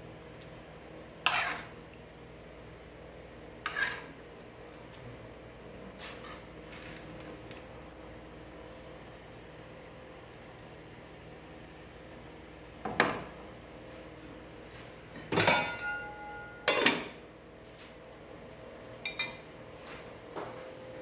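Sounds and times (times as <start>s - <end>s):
metal cookware clanking: 15.3s - 17.2s.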